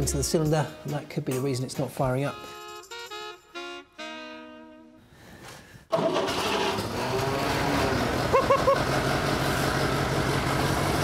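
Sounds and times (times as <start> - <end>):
tractor engine starting and running: 5.9 - 11.0.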